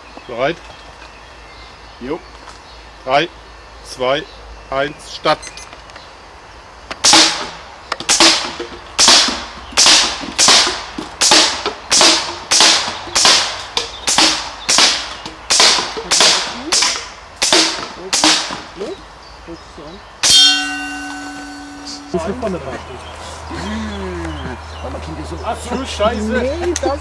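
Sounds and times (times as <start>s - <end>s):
rifle firing: 7.0s - 18.7s
sharp hit: 20.2s - 22.6s
steady ringing tone: 20.2s - 22.6s.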